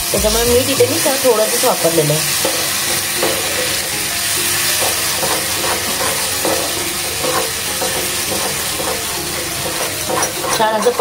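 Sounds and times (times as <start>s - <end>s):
paste sizzling in hot oil: 0.0s - 11.0s.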